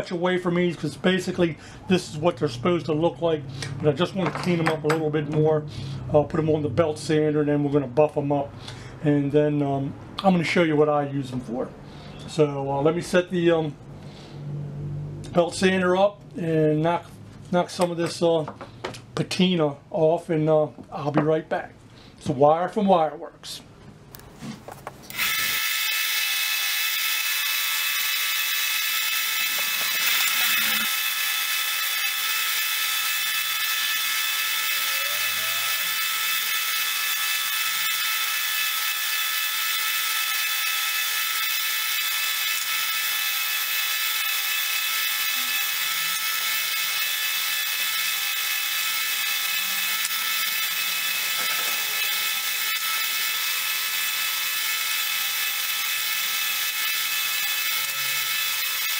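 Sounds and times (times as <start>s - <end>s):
belt sander whining: 24.5s - 58.9s.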